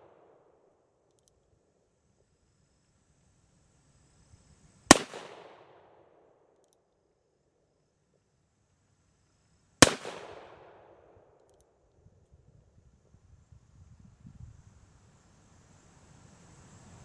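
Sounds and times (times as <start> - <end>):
faint clicks: 1.1 - 1.4
revolver gunshots with echo: 4.9 - 6.0, 9.8 - 11.0.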